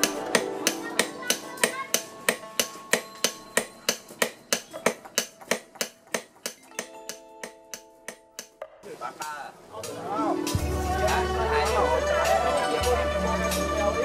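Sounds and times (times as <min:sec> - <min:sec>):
hammers striking steel on anvil: 0:00.0 - 0:08.8.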